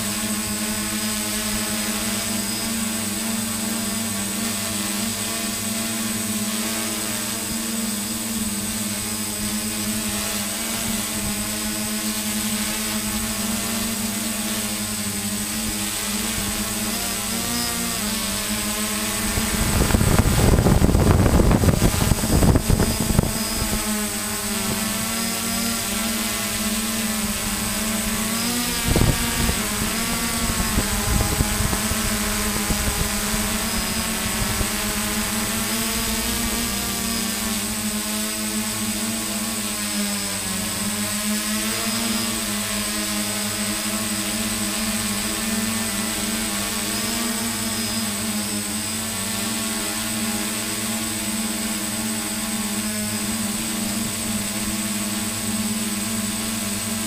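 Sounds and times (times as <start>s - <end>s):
drone propellers whirring: 0.0s - 57.0s
loud rumbling buffeting: 18.6s - 24.4s.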